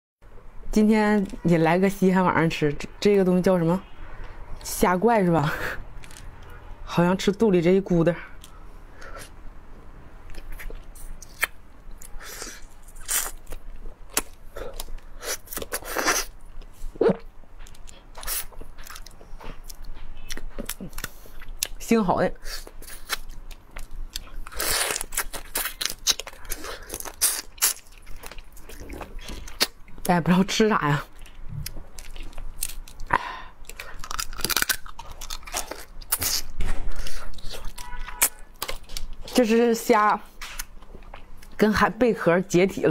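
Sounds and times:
wet sucking and chewing: 0:10.3 - 0:21.8, 0:22.4 - 0:30.1
crab shell crunching: 0:22.6 - 0:30.0, 0:31.1 - 0:39.3
crab shells cracking: 0:31.7 - 0:36.4.

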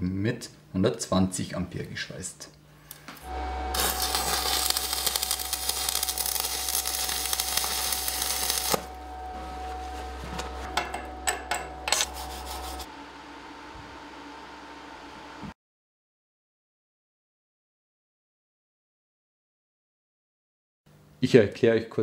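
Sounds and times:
low hum: 0:03.2 - 0:15.6
welding arc crackling: 0:03.3 - 0:09.0.

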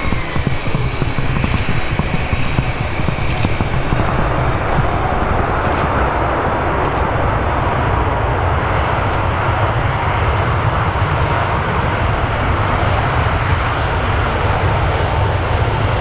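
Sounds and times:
deep rumble: 0:00.0 - 0:16.0
jet engines running loud: 0:00.0 - 0:16.0.

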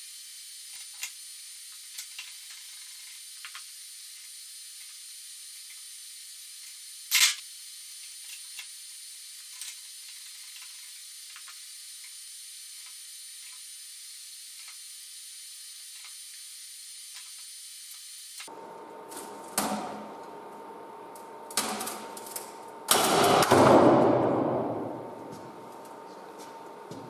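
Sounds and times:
sharp knock: 0:22.9 - 0:25.1.

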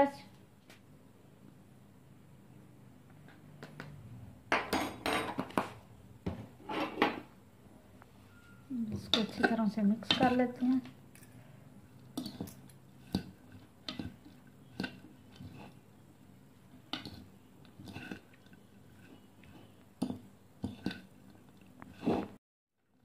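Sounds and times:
forks scraping a bowl: 0:09.0 - 0:10.5, 0:17.8 - 0:21.1, 0:21.8 - 0:22.4.

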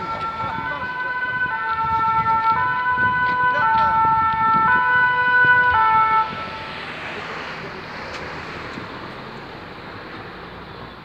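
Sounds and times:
fire engine two-tone siren: 0:00.0 - 0:08.6
steady rushing noise: 0:00.0 - 0:10.2.

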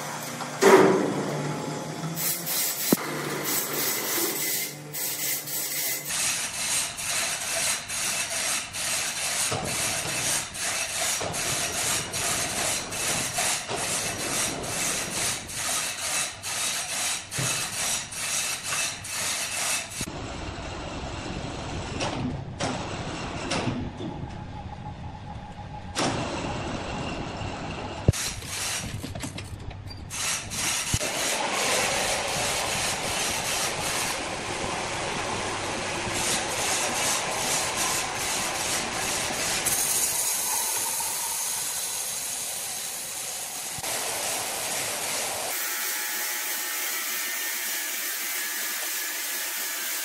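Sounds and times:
band sawmill cutting log: 0:30.2 - 0:50.0.

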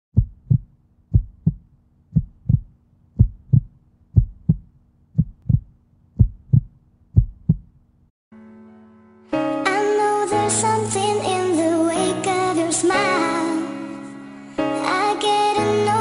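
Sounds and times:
heartbeat double thumps: 0:00.1 - 0:07.8.

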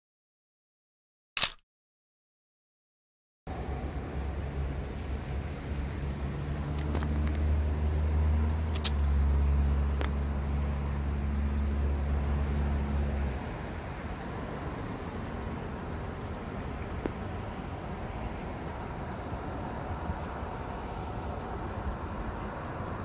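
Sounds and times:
short sharp clicks: 0:01.4 - 0:01.6
low engine hum: 0:03.5 - 0:23.0.

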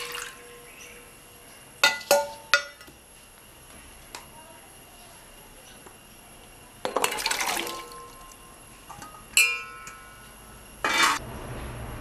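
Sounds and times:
steel striking steel clink: 0:09.0 - 0:10.2.

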